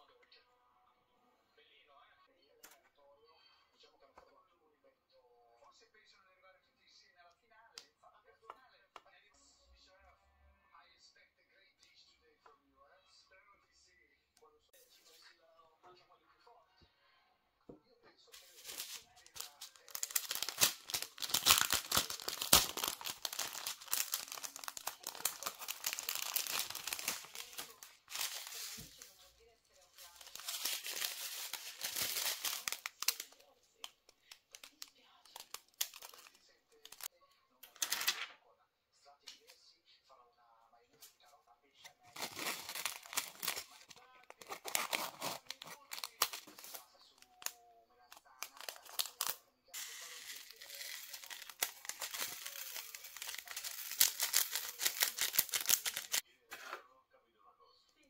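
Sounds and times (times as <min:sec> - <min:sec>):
plastic packet crinkling: 0:18.4 - 0:29.3, 0:29.9 - 0:33.5, 0:34.3 - 0:37.1, 0:42.1 - 0:47.5, 0:48.1 - 0:56.2
scissors snipping plastic: 0:19.8 - 0:27.6.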